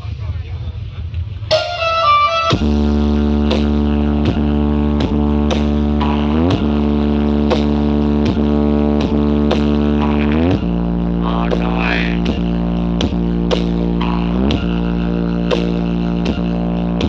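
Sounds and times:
deep bass drone: 0:00.0 - 0:17.0.

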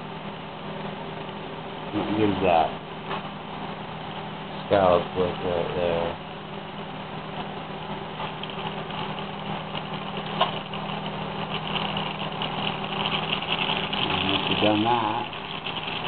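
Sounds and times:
low hum: 0:06.1 - 0:16.0
torch burning with rushing hiss: 0:08.1 - 0:16.0.

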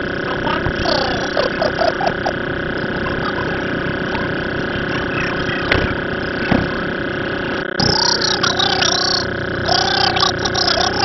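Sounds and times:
car engine running: 0:00.0 - 0:11.0
voices: 0:00.0 - 0:11.0
sharp knocks: 0:05.7 - 0:06.8.

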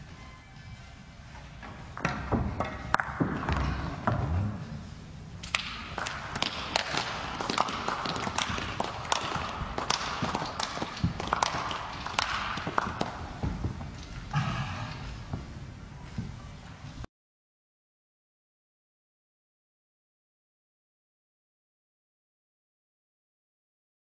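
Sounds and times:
scattered clapping: 0:05.5 - 0:13.2.

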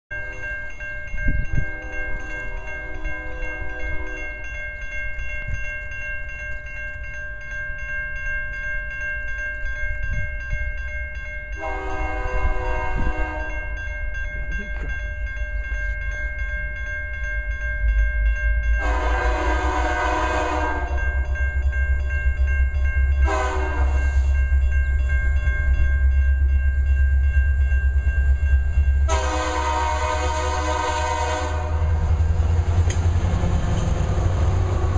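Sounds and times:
crossing bell ringing: 0:00.1 - 0:34.9
locomotive horn blasts: 0:01.6 - 0:04.3, 0:11.6 - 0:13.6, 0:18.8 - 0:21.2, 0:23.2 - 0:24.4, 0:29.1 - 0:32.0
low locomotive rumble: 0:11.5 - 0:34.9.

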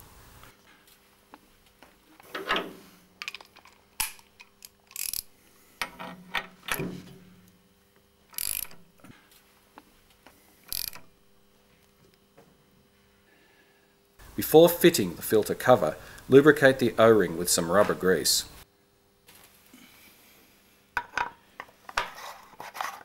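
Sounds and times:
ratchet wrench clicking: 0:04.4 - 0:05.3, 0:08.3 - 0:08.8, 0:10.7 - 0:11.1.

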